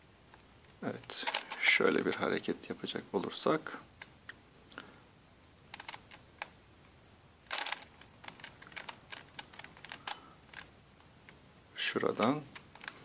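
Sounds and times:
puzzle cube clicking: 1.0s - 1.7s, 5.7s - 6.6s, 7.4s - 10.7s, 12.1s - 13.0s
rasping cube turn: 5.7s - 6.5s, 7.4s - 10.7s.

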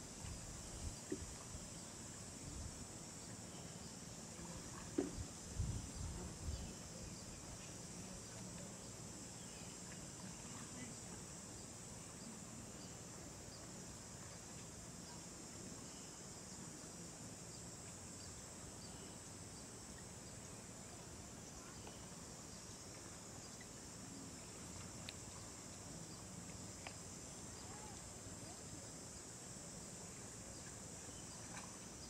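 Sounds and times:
insects buzzing: 0.0s - 32.0s
faint clicks: 24.8s - 25.4s, 26.4s - 27.0s.

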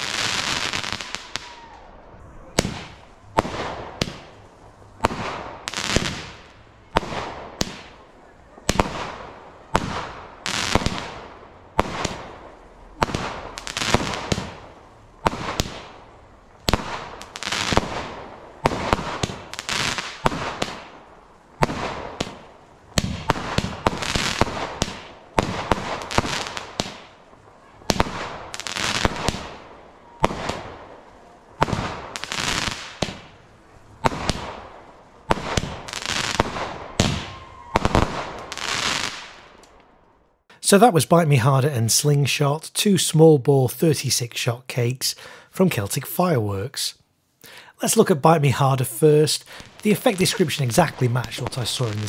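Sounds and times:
firework cake reports: 0.0s - 16.1s, 40.5s - 52.0s.

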